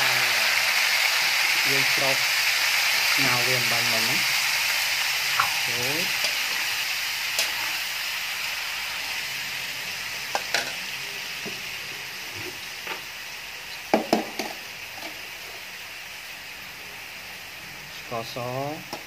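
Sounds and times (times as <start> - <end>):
squid sizzling in a wok: 0.0 - 19.0
metal utensil scraping a wok: 5.4 - 8.1.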